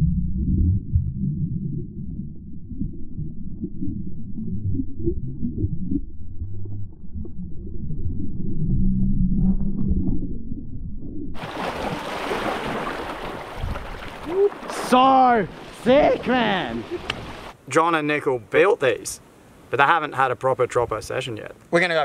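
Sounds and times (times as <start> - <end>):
underwater rumble and gurgling: 0.0 - 11.5
seawater splashing and lapping: 11.4 - 17.6.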